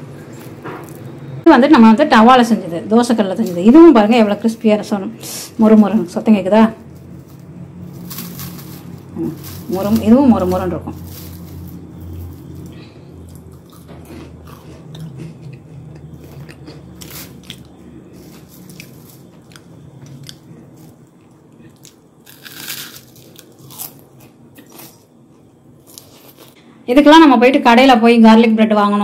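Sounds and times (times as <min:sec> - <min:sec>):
bread crunching: 0:06.9 - 0:25.0, 0:25.8 - 0:26.6.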